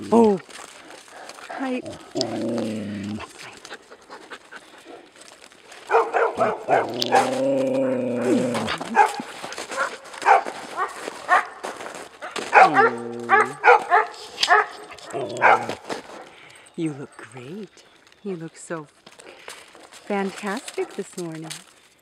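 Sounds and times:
dogs barking: 0.8s - 16.4s
dog howling call: 5.8s - 11.6s, 12.5s - 15.9s.

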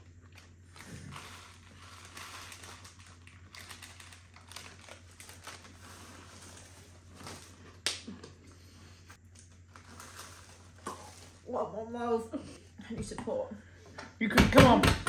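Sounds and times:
crisp packets crinkling: 0.3s - 7.8s, 9.2s - 11.5s.

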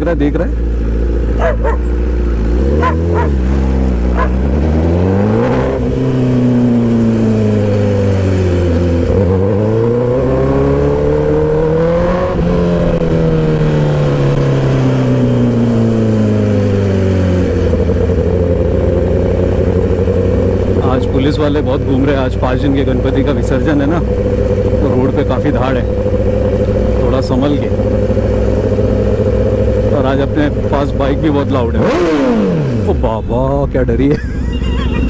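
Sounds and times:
motorcycle engine revving: 0.0s - 35.0s
dog barking: 1.4s - 1.9s, 2.8s - 3.4s, 4.2s - 4.4s.

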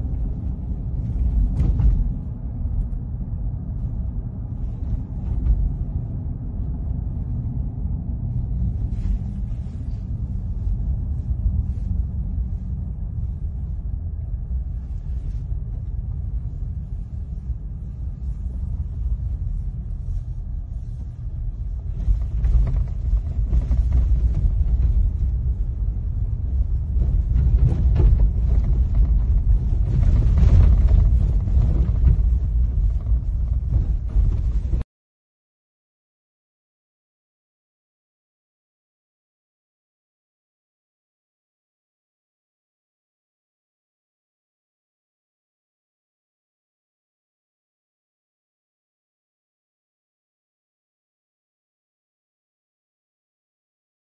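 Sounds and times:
car cabin road noise: 0.0s - 34.8s.

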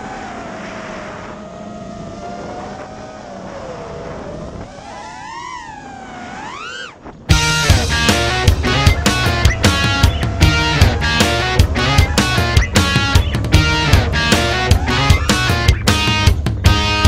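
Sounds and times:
drone motors whining: 0.0s - 17.0s
music: 7.3s - 17.0s.

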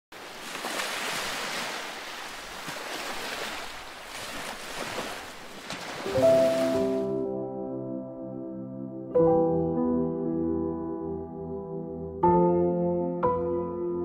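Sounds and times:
ocean waves on beach: 0.1s - 7.2s
music with long held notes: 6.2s - 14.0s.

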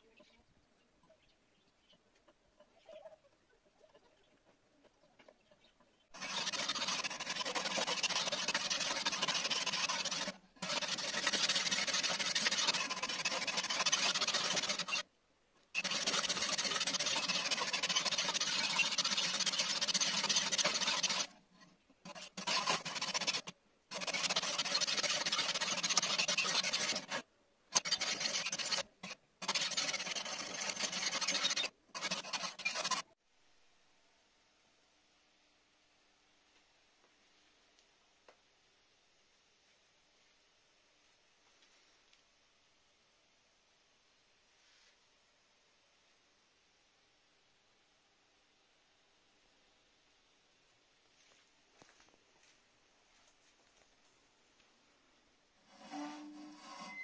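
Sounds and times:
metal file scraping steel: 6.2s - 15.0s, 15.8s - 21.4s, 22.1s - 33.1s, 55.6s - 57.0s.

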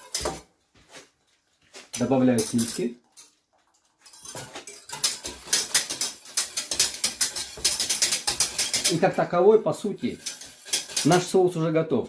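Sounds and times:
wire whisk scraping a steel pot: 0.0s - 0.3s, 1.9s - 3.3s, 4.0s - 11.7s.

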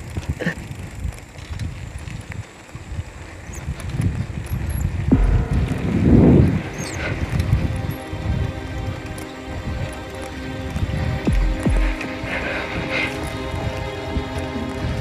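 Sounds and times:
wind buffeting microphone: 0.0s - 15.0s
background music: 5.1s - 15.0s.

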